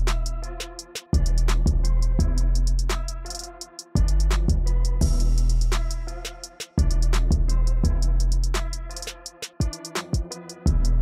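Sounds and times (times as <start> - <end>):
electronic music: 0.0 - 11.0
hi-hat beat: 0.0 - 11.0
kick-drum hits: 4.0 - 5.5, 6.8 - 8.2.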